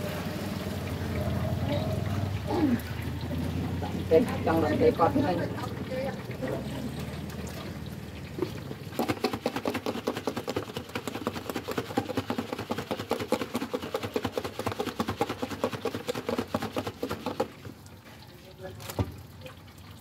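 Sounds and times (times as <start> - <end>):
fast tapping strokes: 9.0 - 17.6.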